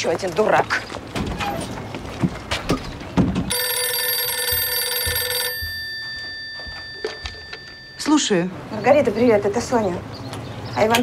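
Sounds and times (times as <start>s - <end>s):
telephone bell ringing: 3.5s - 8.4s.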